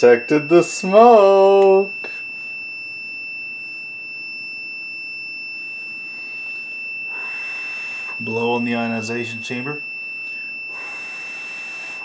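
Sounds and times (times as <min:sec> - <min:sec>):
continuous beep of multimeter: 0:00.0 - 0:12.0
breath blowing: 0:07.1 - 0:08.2, 0:10.7 - 0:12.0.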